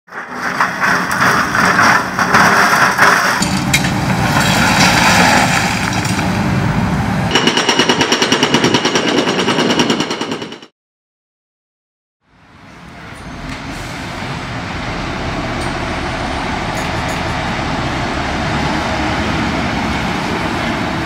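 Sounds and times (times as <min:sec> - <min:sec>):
excavator running: 0:00.1 - 0:09.6, 0:12.3 - 0:21.0
hydraulic breaker hammer pounding: 0:00.5 - 0:04.9, 0:07.3 - 0:10.7.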